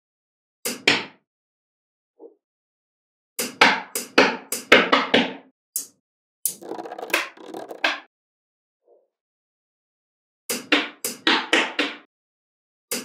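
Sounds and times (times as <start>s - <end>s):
magnetic balls clicking together: 6.5s - 7.9s.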